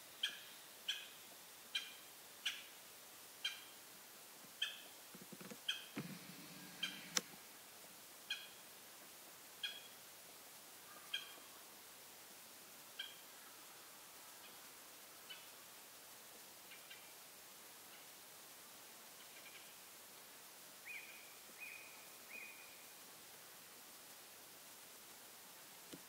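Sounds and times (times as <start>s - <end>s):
woodpecker calling: 0.2s - 2.8s, 3.4s - 3.8s, 4.6s - 7.3s, 8.2s - 8.6s, 9.6s - 10.0s, 10.9s - 11.5s, 13.0s - 13.2s, 19.2s - 19.7s, 20.8s - 22.8s.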